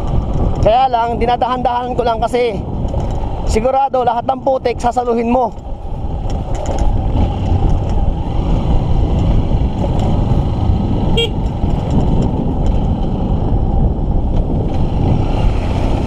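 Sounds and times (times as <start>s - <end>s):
motorcycle engine running: 5.5s - 16.0s
short horn toot: 11.2s - 11.4s.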